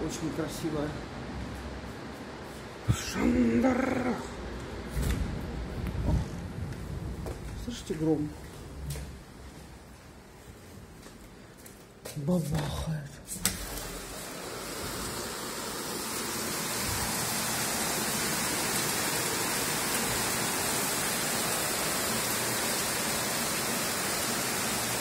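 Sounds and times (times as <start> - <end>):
heavy rain hissing: 2.7 - 10.2, 13.6 - 25.0.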